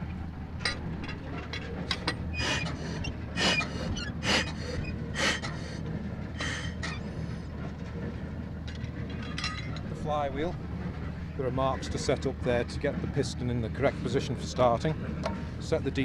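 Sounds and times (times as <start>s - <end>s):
low engine hum: 0.0s - 16.0s
breathy hissing bursts: 2.4s - 5.8s.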